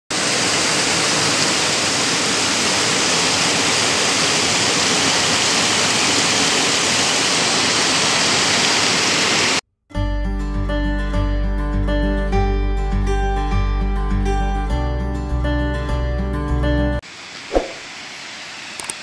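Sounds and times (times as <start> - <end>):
waterfall rushing over rocks: 0.1 - 9.6.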